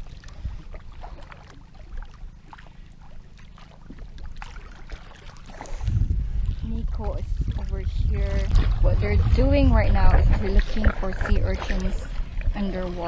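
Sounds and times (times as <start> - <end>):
wind rumble on microphone: 0.0 - 1.3, 4.9 - 13.0
small waves lapping against hull: 0.0 - 13.0.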